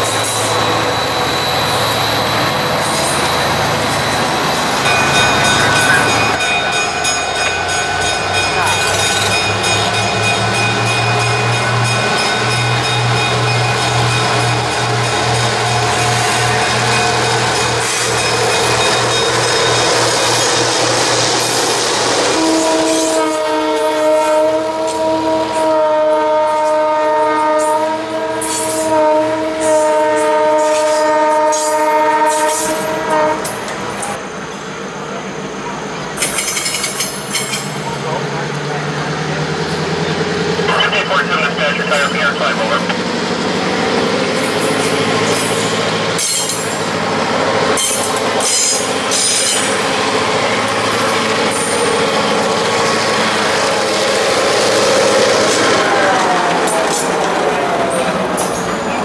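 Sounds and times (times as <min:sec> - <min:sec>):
diesel locomotive: 0:00.0 - 0:59.0
train wheels rumbling on rail: 0:00.0 - 0:59.0
locomotive air horn blast: 0:22.2 - 0:33.6
train cars rattling over rail joints: 0:35.8 - 0:40.7, 0:42.9 - 0:59.0.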